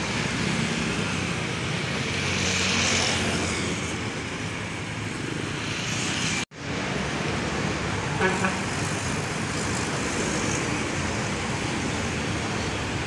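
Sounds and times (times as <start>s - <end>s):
truck and scooters passing: 0.0s - 13.0s.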